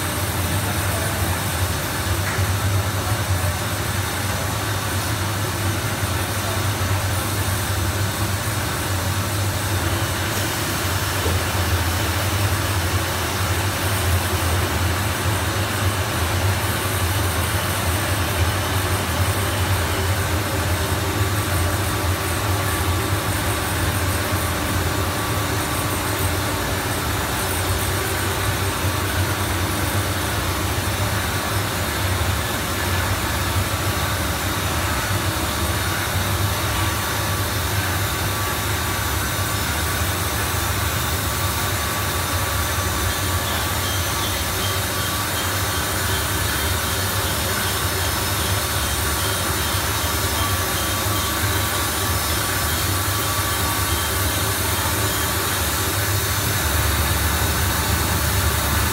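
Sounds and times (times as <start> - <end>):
machinery low hum: 51.0 - 58.9.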